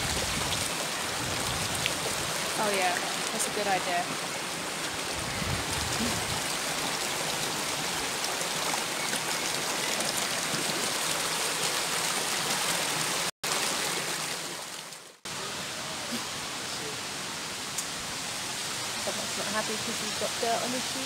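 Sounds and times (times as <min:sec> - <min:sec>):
stream water flowing: 0:00.0 - 0:21.0.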